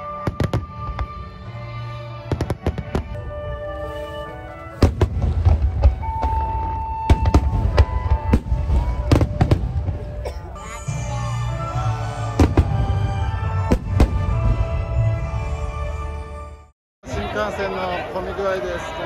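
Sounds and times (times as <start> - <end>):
fireworks bangs: 0.0 - 1.3, 4.7 - 10.3, 12.0 - 14.8
music playing: 0.0 - 16.7.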